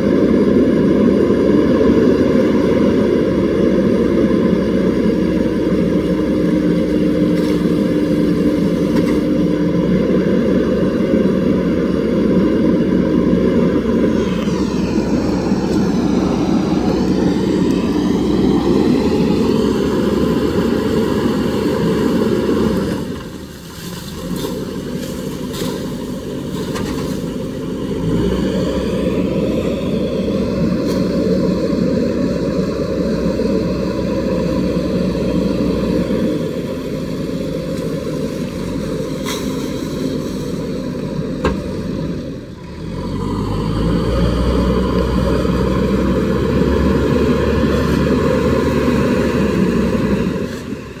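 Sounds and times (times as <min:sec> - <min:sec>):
diesel engine running under load: 0:00.0 - 0:51.0.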